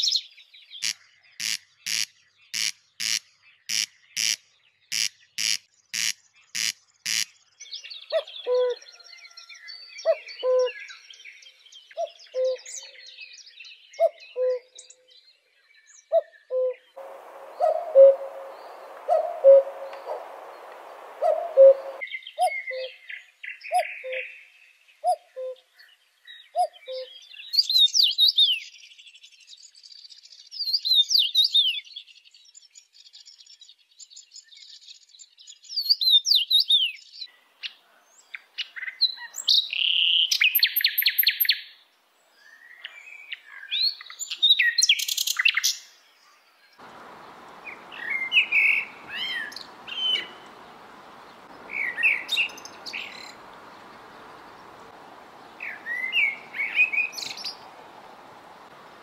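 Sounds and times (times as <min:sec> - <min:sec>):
songbirds singing: 0:00.0 - 0:59.0
steady hiss: 0:17.0 - 0:22.0, 0:46.8 - 0:59.0.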